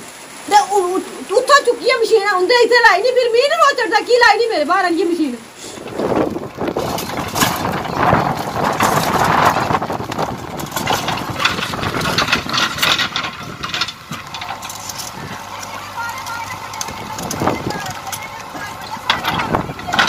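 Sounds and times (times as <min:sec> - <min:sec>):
diesel engine under load: 0:01.3 - 0:20.0
concrete and rubble clattering: 0:05.8 - 0:20.0.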